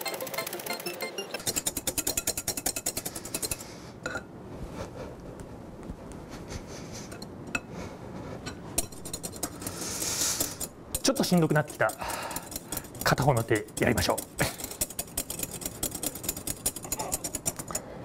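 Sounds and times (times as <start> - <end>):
whisk clicking against glass bowl: 1.4 - 3.6, 8.8 - 17.8.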